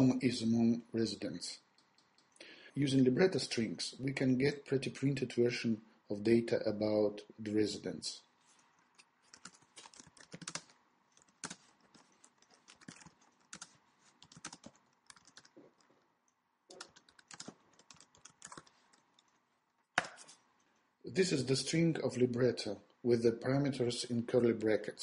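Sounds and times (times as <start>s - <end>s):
keyboard typing: 8.9s - 15.9s, 16.7s - 19.4s.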